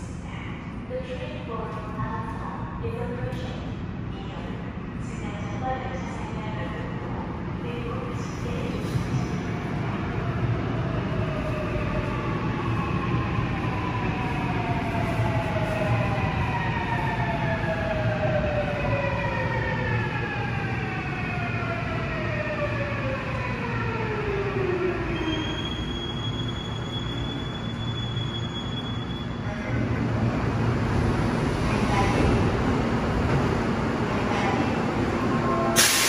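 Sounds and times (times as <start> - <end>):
electric train braking: 35.8 - 36.0.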